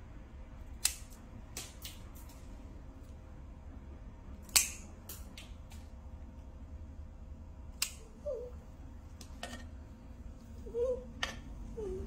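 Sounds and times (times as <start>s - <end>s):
low steady hum: 0.0s - 12.0s
dog nail clippers snipping: 0.8s - 2.4s, 4.4s - 5.8s, 7.8s - 8.1s.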